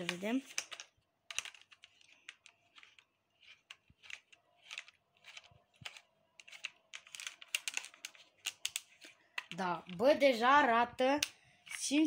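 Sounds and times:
plastic clicks and scrapes: 0:00.0 - 0:10.1.

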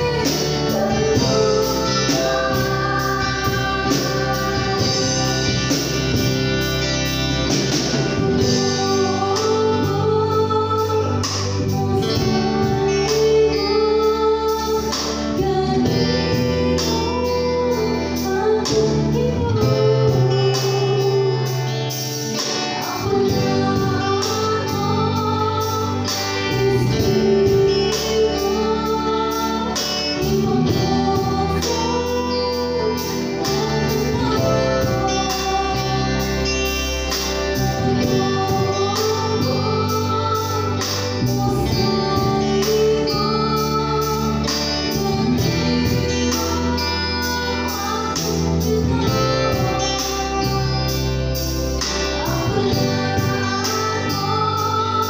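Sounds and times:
drum kit beat: 0:00.0 - 0:13.3
bass guitar: 0:00.0 - 0:55.0
electric guitar: 0:00.0 - 0:55.0
keyboard: 0:00.0 - 0:55.0
woman singing: 0:00.0 - 0:55.0.

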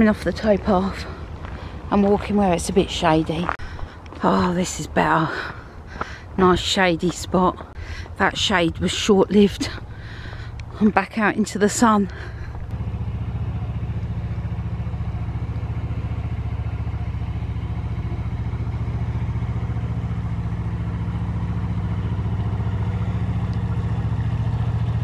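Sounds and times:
boat engine chugging: 0:07.6 - 0:25.0.

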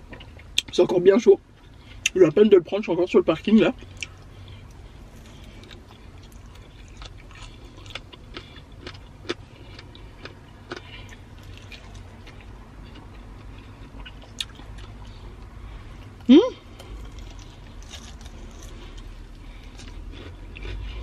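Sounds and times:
low steady rumble: 0:00.0 - 0:21.0
chewing crispy chicken: 0:03.8 - 0:15.5, 0:16.6 - 0:21.0.

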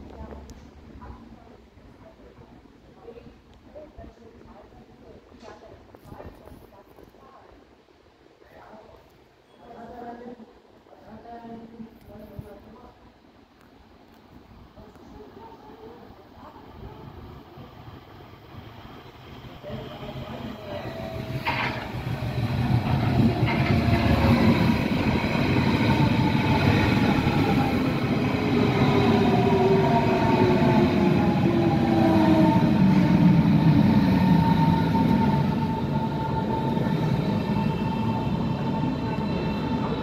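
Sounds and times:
electric train passing: 0:15.2 - 0:40.0.

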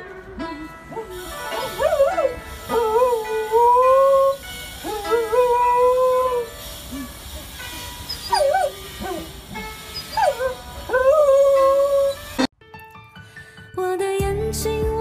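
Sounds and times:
dog howling: 0:00.0 - 0:07.5, 0:08.1 - 0:12.4.

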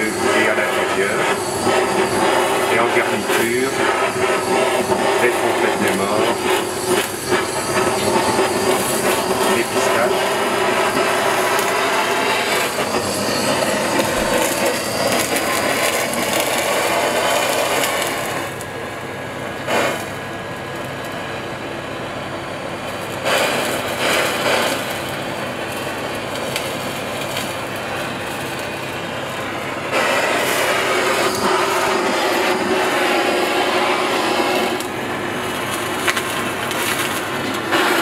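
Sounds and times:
blowtorch flame hissing: 0:00.0 - 0:38.0.

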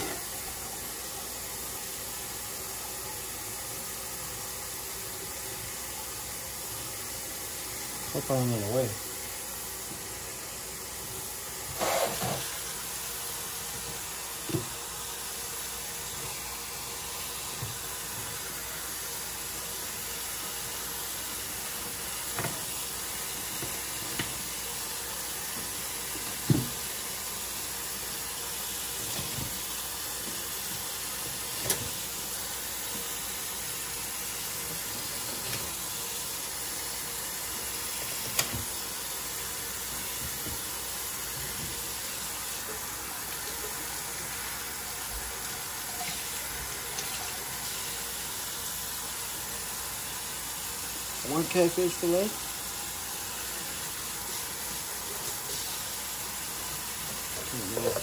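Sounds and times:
faucet running into a sink: 0:00.0 - 0:58.0.

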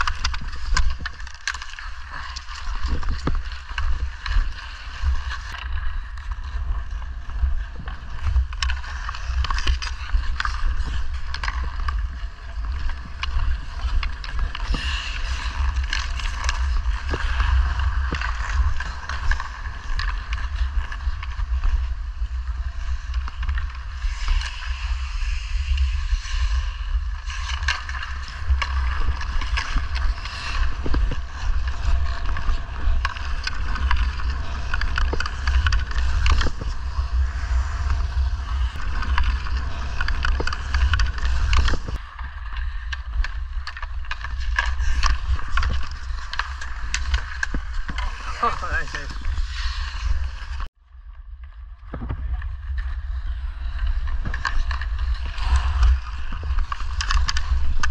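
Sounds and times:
hockey stick clicking on puck: 0:00.0 - 0:06.7, 0:07.8 - 0:21.8, 0:27.3 - 0:38.2, 0:38.8 - 0:49.1, 0:53.7 - 0:57.9
wind on microphone: 0:00.0 - 0:50.7
skates scraping on ice: 0:00.0 - 0:57.9.

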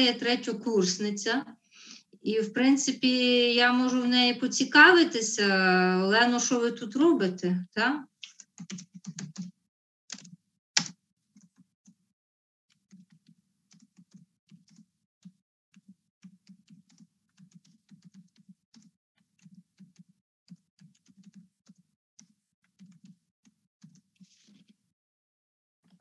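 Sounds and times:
faint keyboard typing: 0:08.2 - 0:12.0, 0:12.7 - 0:24.9.

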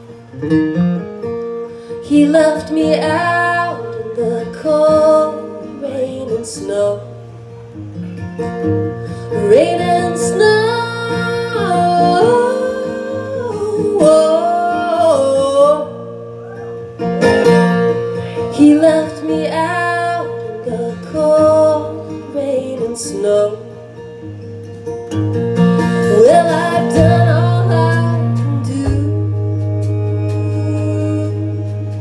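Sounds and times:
acoustic guitar: 0:00.0 - 0:32.0
woman singing: 0:01.9 - 0:07.2, 0:09.2 - 0:16.7, 0:17.3 - 0:23.8, 0:25.9 - 0:32.0
electric bass: 0:24.6 - 0:32.0.

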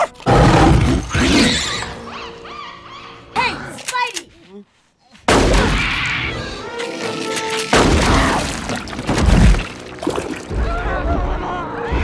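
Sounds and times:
dramatic music: 0:05.3 - 0:12.0
debris shattering: 0:07.0 - 0:10.6.

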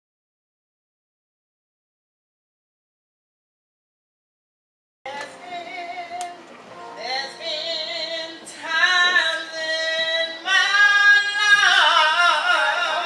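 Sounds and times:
woman singing: 0:05.1 - 0:13.0.

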